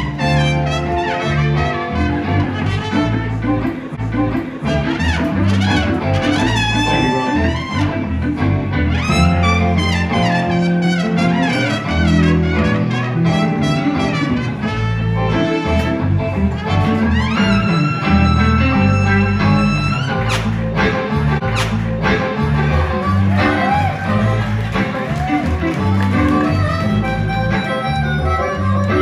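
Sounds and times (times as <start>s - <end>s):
trumpet solo: 0.0s - 3.4s, 4.7s - 8.2s, 8.9s - 21.7s
bass line: 0.0s - 29.0s
electric guitar: 0.0s - 29.0s.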